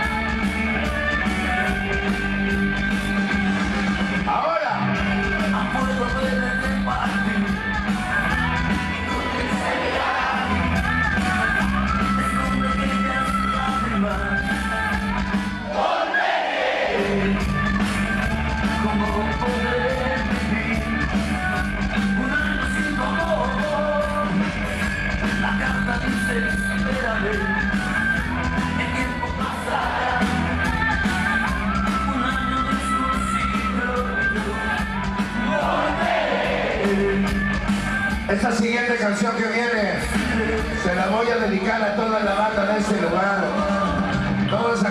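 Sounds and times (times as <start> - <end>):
loud dance music: 0.0 - 20.1, 27.2 - 31.8, 32.4 - 39.0
person singing: 16.9 - 24.5, 25.4 - 38.2
steady bass beat: 17.0 - 38.8.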